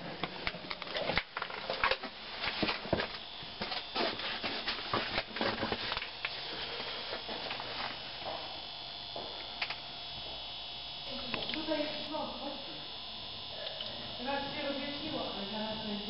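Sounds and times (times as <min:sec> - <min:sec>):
footsteps on stone floor: 0:02.0 - 0:08.5, 0:09.2 - 0:09.5
steady hiss: 0:02.1 - 0:16.0.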